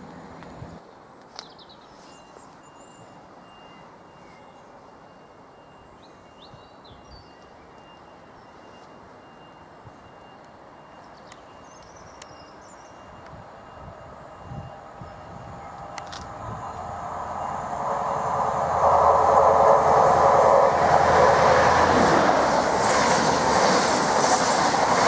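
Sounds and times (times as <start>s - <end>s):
low engine drone: 14.8s - 22.8s.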